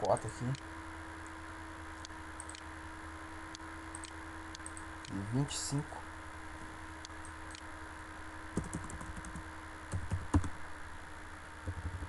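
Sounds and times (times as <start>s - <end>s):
low electrical hum: 0.0s - 12.0s
computer keyboard keys clicking: 8.6s - 10.5s.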